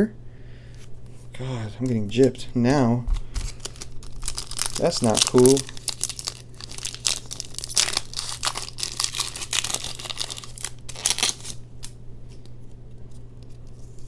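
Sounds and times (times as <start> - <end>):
foil wrapper crinkling: 3.1 - 12.0.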